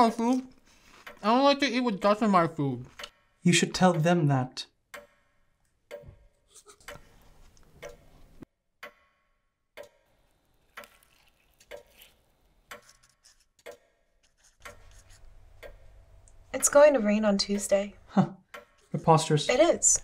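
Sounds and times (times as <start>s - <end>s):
clock ticking: 0.0s - 9.0s, 9.8s - 10.0s, 13.6s - 13.9s, 14.6s - 20.0s.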